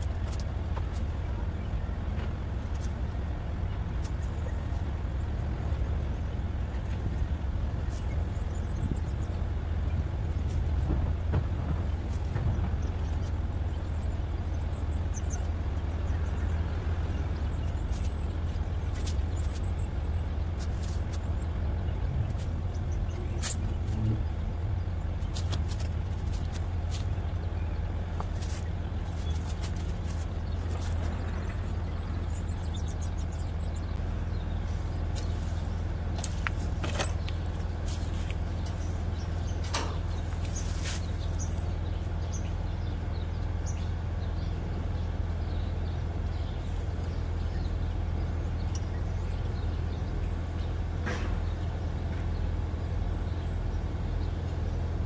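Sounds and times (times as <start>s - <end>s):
heat pump compressor humming: 16.7s - 44.8s.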